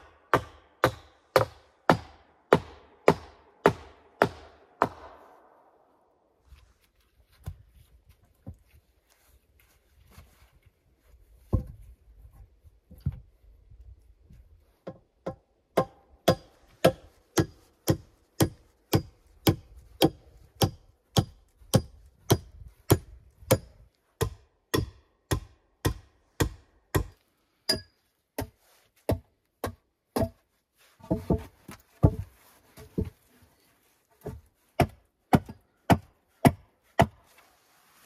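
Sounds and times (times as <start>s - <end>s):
tool striking wood: 0.3s - 5.3s, 14.8s - 30.4s, 31.0s - 33.1s.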